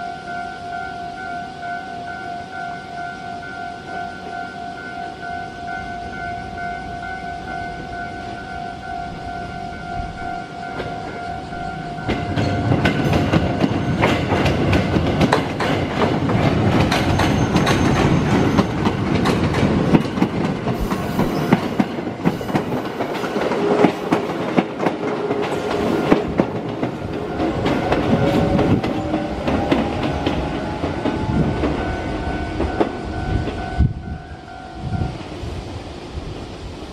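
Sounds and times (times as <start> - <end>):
level-crossing warning bell: 0.0 - 35.4
train wheels clattering over rails: 10.7 - 33.9.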